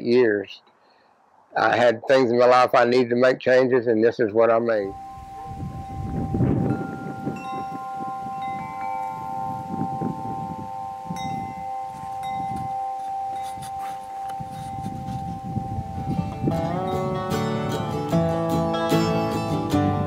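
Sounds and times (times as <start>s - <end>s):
tubular wind chimes ringing: 4.9s - 19.6s.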